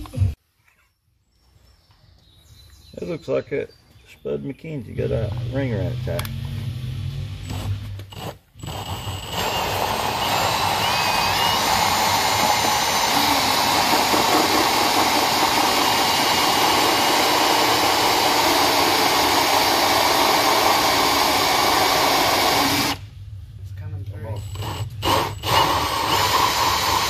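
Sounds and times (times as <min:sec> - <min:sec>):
drill hole saw cutting plastic: 0:05.0 - 0:23.0, 0:24.4 - 0:27.0.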